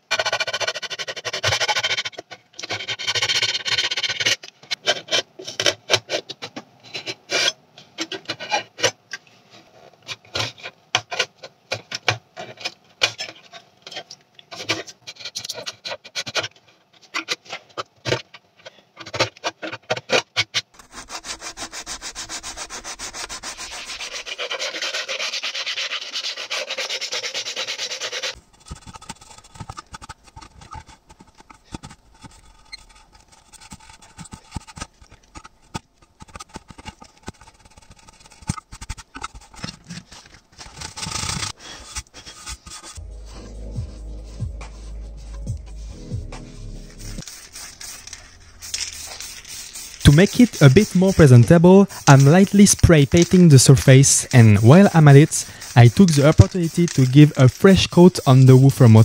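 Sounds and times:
knife blade scraping adhesive: 19.2 - 43.0, 47.0 - 59.0.

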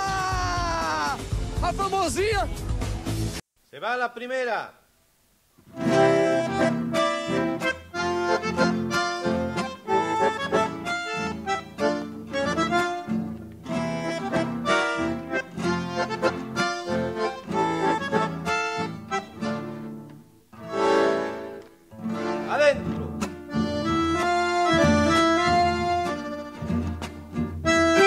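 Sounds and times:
accordion music: 5.7 - 28.0.

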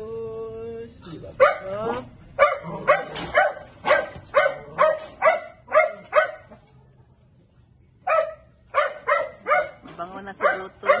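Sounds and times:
small dog barking: 1.4 - 6.6, 8.0 - 11.0.

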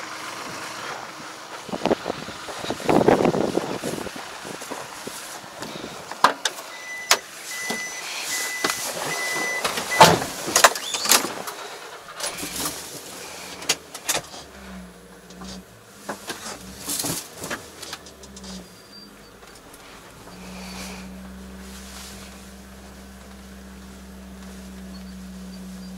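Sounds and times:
small truck engine running: 0.0 - 25.9
high beeps: 6.7 - 10.2
knocks and clatter: 8.6 - 12.9, 15.2 - 18.6.

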